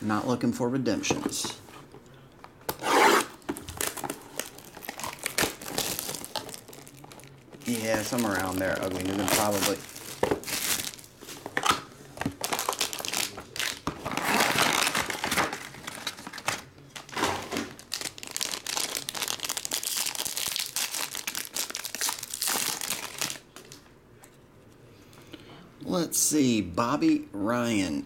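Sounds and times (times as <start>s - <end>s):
foil pack crinkling and tearing: 3.6s - 11.6s, 12.3s - 23.7s.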